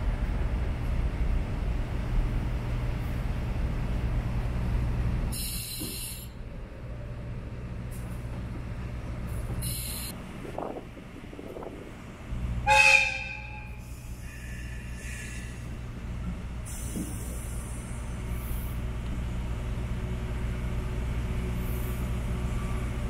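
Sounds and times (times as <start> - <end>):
low rumble of diesel train: 0.0 - 23.0
short hisses: 5.4 - 6.3
train horn blast: 12.6 - 15.3.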